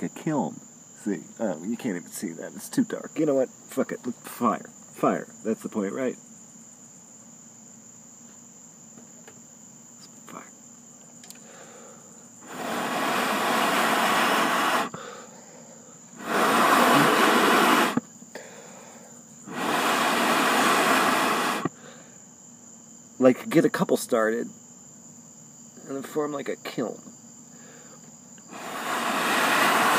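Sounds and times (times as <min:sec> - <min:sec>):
crickets chirping: 0:00.0 - 0:29.9
person blowing hard breaths: 0:11.4 - 0:22.3, 0:27.5 - 0:29.9.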